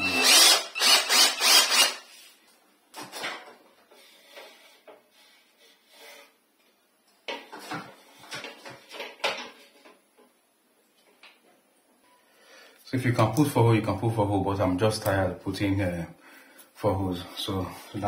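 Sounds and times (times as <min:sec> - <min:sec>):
drill chuck twisted by hand: 0:00.1 - 0:02.0.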